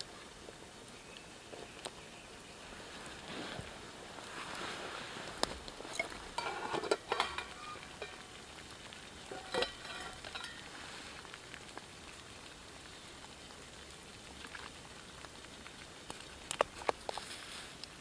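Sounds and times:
campfire sizzling hiss: 0.0s - 18.0s
knife scraping metal plate: 5.9s - 8.2s, 9.3s - 10.6s.

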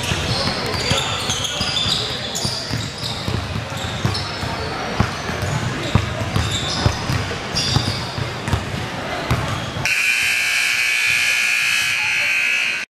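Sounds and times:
basketball bouncing on hardwood floor: 1.7s - 9.6s
scoreboard buzzer long tone: 9.8s - 12.9s.

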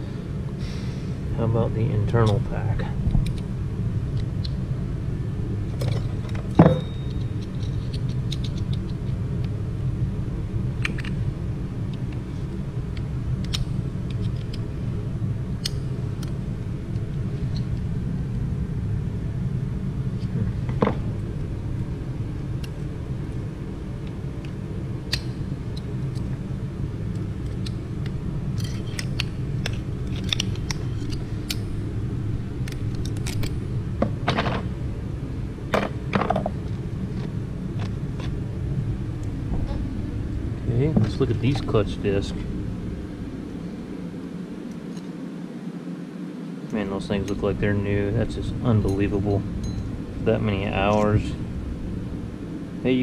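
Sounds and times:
metal parts clicking and clinking: 5.8s - 9.1s, 28.5s - 31.7s
low rumble: 8.6s - 44.7s.

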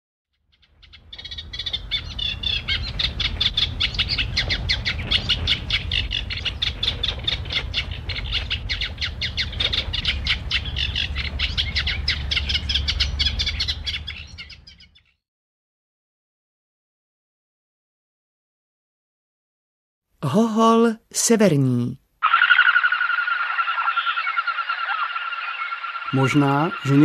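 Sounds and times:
low rumble: 1.0s - 14.8s
duck wings whistling: 22.2s - 27.0s.

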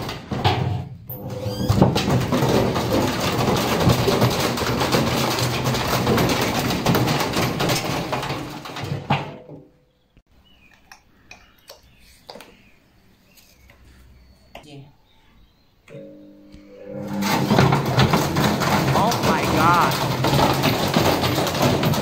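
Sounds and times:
brick banging in washing machine: 0.0s - 9.7s, 16.9s - 22.0s
washing machine tipping over bang: 0.0s - 9.7s, 16.9s - 22.0s.

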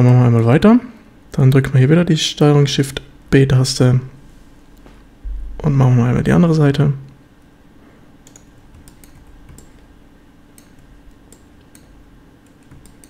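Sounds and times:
low steady hum: 0.0s - 13.0s
keyboard and mouse clicks: 8.2s - 9.9s, 10.5s - 13.0s.

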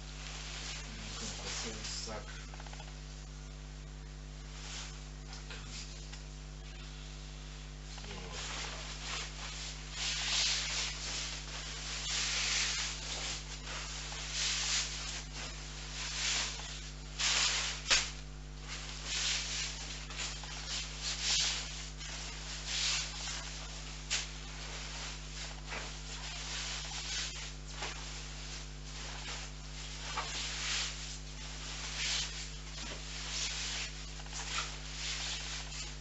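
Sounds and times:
fabric and plastic bags rustling: 8.0s - 36.0s.

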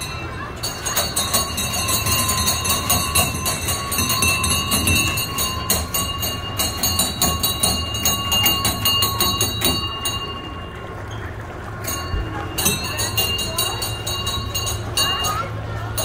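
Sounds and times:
bells clanging: 0.0s - 16.0s.

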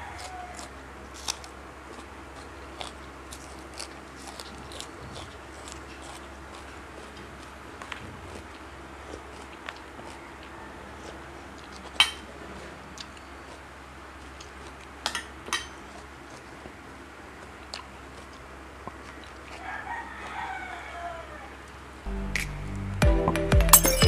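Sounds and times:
rooster crowing: 0.0s - 0.7s, 10.0s - 11.4s, 19.5s - 21.7s
metal spoon clinking on dishes: 23.7s - 24.0s.

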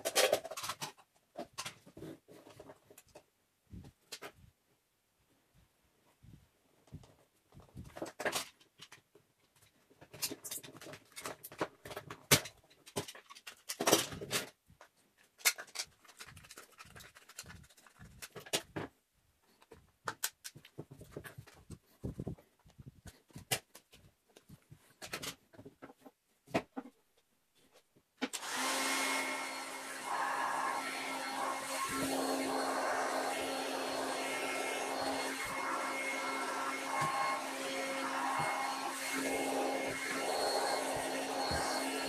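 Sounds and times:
plastic being handled: 6.2s - 28.3s
heat gun blowing hum: 28.4s - 42.0s.

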